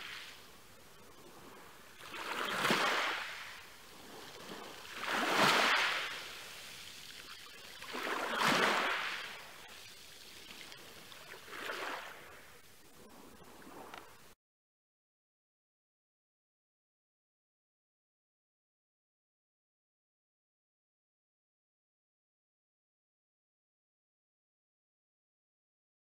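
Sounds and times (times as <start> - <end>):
sea waves washing on beach: 0.0 - 14.4.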